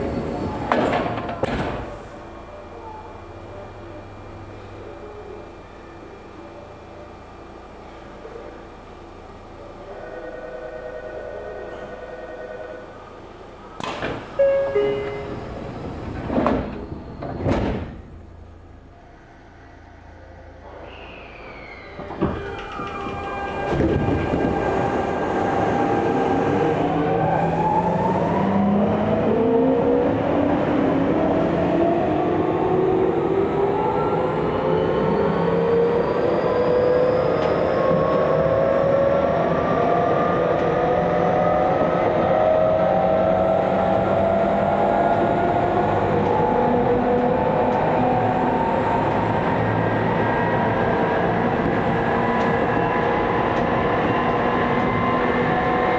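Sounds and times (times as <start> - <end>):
train wheels on rails: 22.0 - 26.9.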